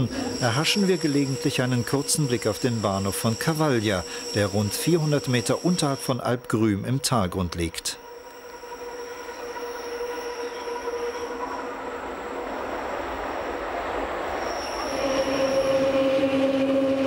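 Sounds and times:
train wheels squealing: 0:00.0 - 0:07.2, 0:07.8 - 0:17.0
train cars rolling: 0:08.6 - 0:17.0.

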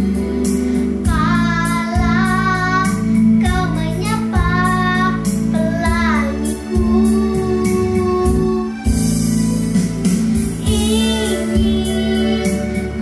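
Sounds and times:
backing track with steady beat: 0:00.0 - 0:13.0
girl singing: 0:01.0 - 0:09.0, 0:10.6 - 0:13.0.

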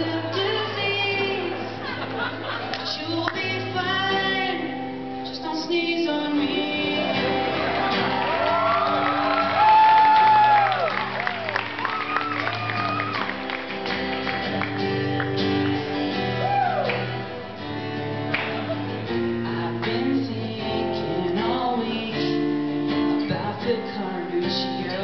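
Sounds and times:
person singing: 0:00.0 - 0:02.0, 0:02.7 - 0:08.1, 0:19.1 - 0:25.0
acoustic guitar strumming chords: 0:00.0 - 0:25.0.

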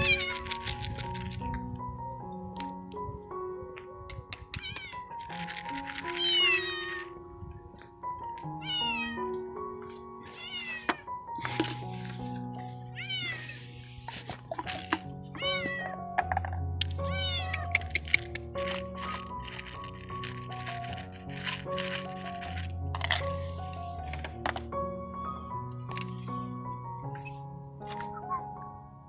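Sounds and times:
cat meowing: 0:00.0 - 0:00.6, 0:04.4 - 0:05.2, 0:06.1 - 0:07.2, 0:08.6 - 0:09.3, 0:10.2 - 0:11.1, 0:13.0 - 0:13.7, 0:15.3 - 0:16.0, 0:17.0 - 0:18.0
background music with held notes: 0:00.0 - 0:29.0.

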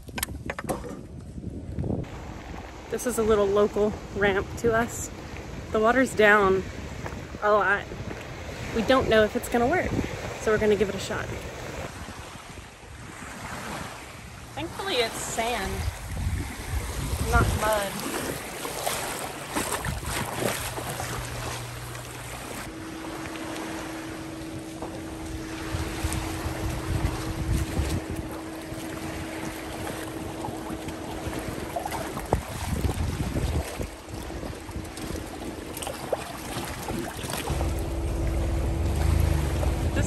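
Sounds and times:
water noise: 0:00.0 - 0:40.0
wind: 0:00.0 - 0:40.0
engine hum: 0:18.3 - 0:32.9, 0:33.6 - 0:40.0
higher steady hum: 0:20.5 - 0:32.9, 0:33.9 - 0:40.0.

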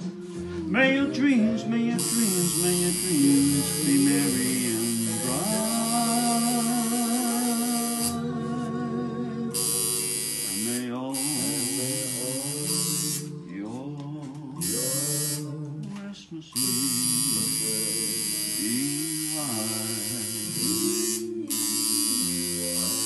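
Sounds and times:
background music with singing: 0:00.0 - 0:23.0
tattoo machine buzzing: 0:01.9 - 0:08.2, 0:09.5 - 0:13.3, 0:14.6 - 0:15.5, 0:16.6 - 0:23.0.

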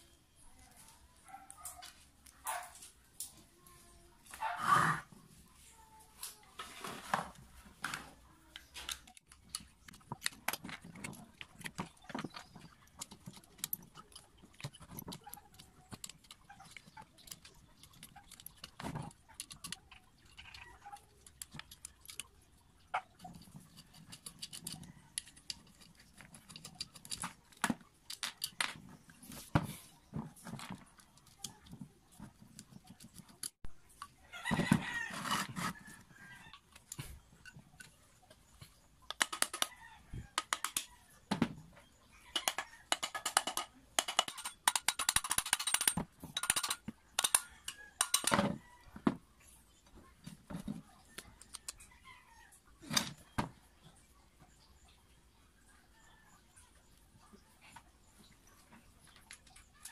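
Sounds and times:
plastic and metal parts clicking: 0:07.3 - 0:49.2, 0:50.2 - 0:51.9.

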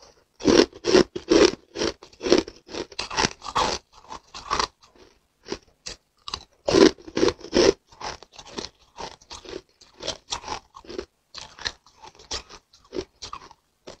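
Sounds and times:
ice being bitten and chewed: 0:00.0 - 0:14.0.

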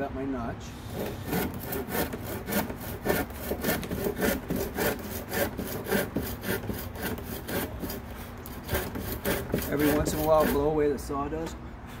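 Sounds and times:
hand saw cutting wood: 0:00.9 - 0:10.8.

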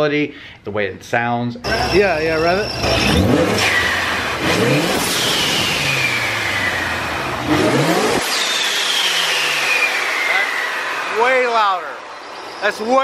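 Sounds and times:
car engine revving: 0:01.6 - 0:13.0
supercharger high whistle: 0:01.7 - 0:13.0
blow-off valve rush of air: 0:03.5 - 0:12.2.

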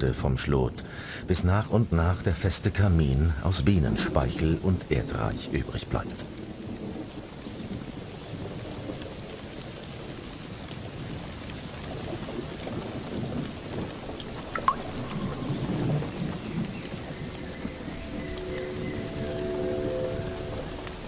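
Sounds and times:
rain falling on grass: 0:00.0 - 0:21.0
rolling thunder rumble: 0:04.0 - 0:21.0
sharp raindrop hits: 0:06.2 - 0:21.0.

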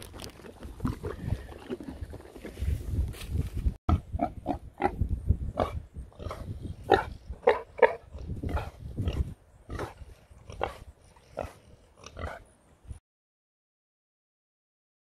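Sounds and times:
pig grunting: 0:05.6 - 0:12.5.

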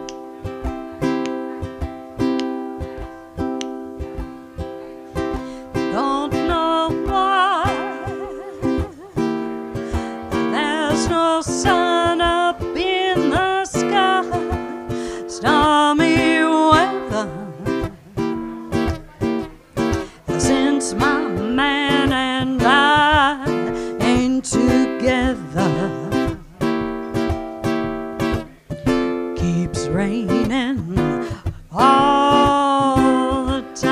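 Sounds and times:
ukulele strummed chords: 0:00.0 - 0:33.9
woman singing jazz: 0:05.4 - 0:18.0, 0:20.0 - 0:26.4, 0:29.4 - 0:33.9.

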